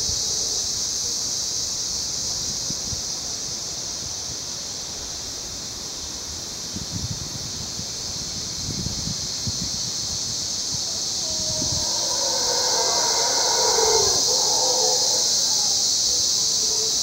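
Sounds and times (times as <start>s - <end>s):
high-pitched insect drone: 8.1s - 17.0s
howler monkeys roaring: 10.8s - 17.0s.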